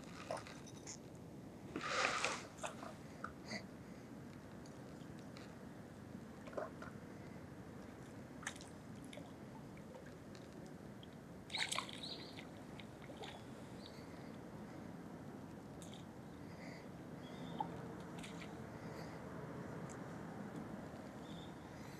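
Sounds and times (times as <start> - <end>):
crackling rustle: 0.0 - 3.0
steady low hum: 0.0 - 21.9.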